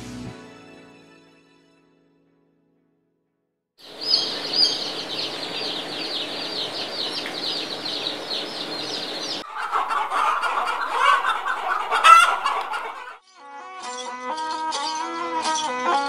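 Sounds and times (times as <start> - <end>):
chickens clucking: 3.8 - 13.2
chicks cheeping shrilly: 3.8 - 13.2.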